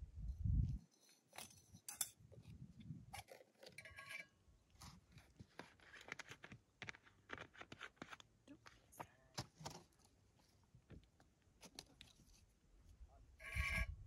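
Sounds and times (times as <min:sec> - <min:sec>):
stove and cookpot clinking: 0:01.4 - 0:02.2.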